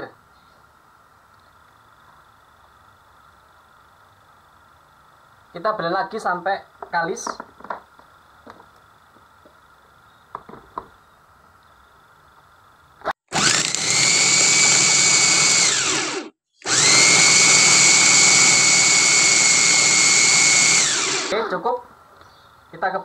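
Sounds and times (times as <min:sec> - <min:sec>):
blender motor whine: 0:13.3 - 0:21.4.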